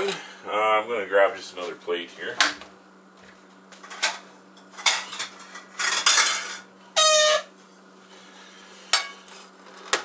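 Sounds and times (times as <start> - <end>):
dishes clinking: 4.8 - 6.7.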